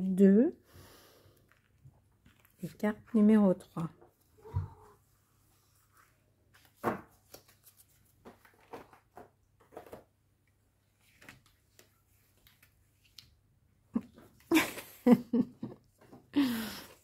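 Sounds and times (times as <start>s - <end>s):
cards tapping and rustling: 6.6s - 10.2s.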